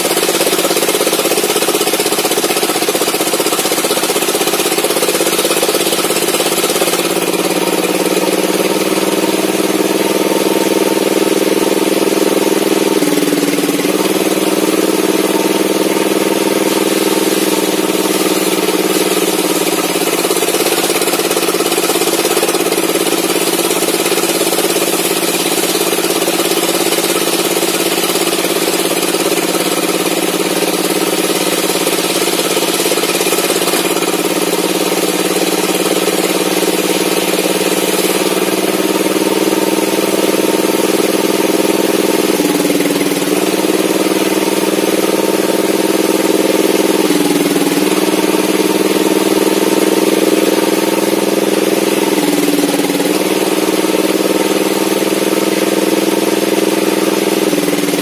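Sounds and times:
table saw cutting wood: 0:00.0 - 0:58.0.

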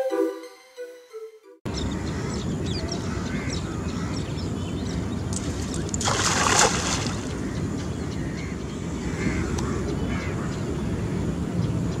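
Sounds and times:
small birds chirping: 0:01.7 - 0:12.0
cast net splashing on water: 0:05.3 - 0:07.4.

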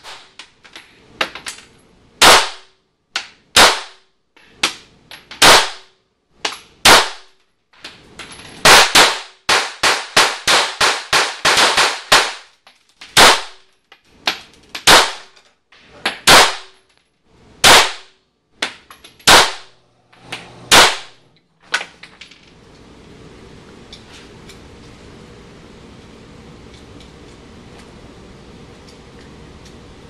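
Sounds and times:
pistol shots echoing: 0:16.3 - 0:16.8, 0:19.3 - 0:19.7, 0:20.7 - 0:21.2.

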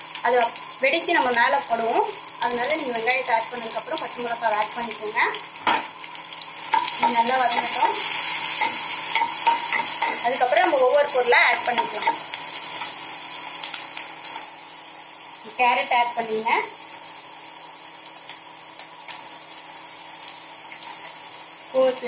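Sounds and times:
onions sizzling in hot oil: 0:00.0 - 0:22.0.

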